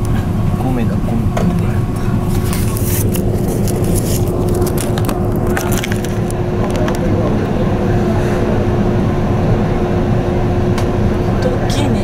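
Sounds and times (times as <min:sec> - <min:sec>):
ship engines droning: 0:00.0 - 0:12.0
ice scraping against hull: 0:02.3 - 0:06.3.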